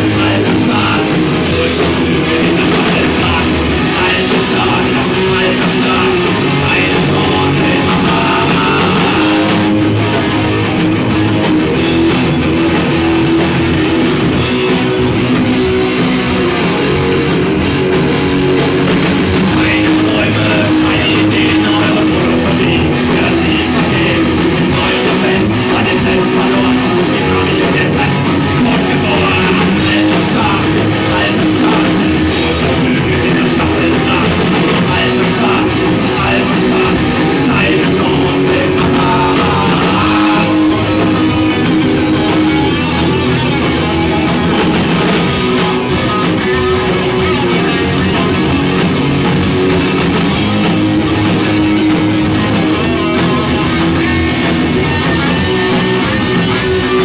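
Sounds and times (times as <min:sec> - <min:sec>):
rock band playing live: 0:00.0 - 0:57.0.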